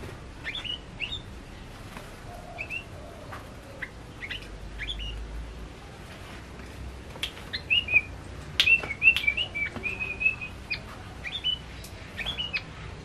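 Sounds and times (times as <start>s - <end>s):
bird singing chirps and whistles: 0.4s - 1.3s, 2.6s - 2.9s, 3.8s - 5.2s, 7.5s - 11.6s, 12.2s - 12.7s.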